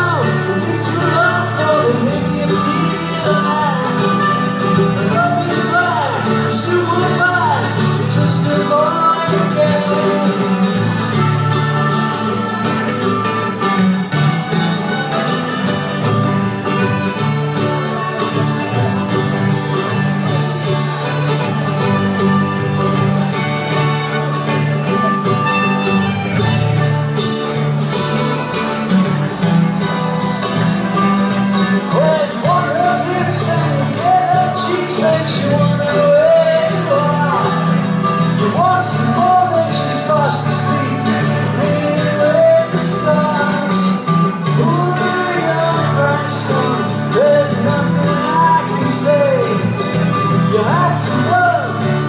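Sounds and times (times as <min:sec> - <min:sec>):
person singing: 0:00.0 - 0:16.2, 0:31.3 - 0:52.0
accordion: 0:00.0 - 0:52.0
strummed guitars: 0:00.0 - 0:52.0.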